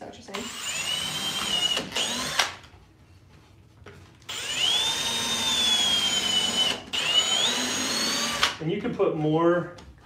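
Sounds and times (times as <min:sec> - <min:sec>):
cordless drill driving screws: 0:00.3 - 0:02.6, 0:04.3 - 0:08.6.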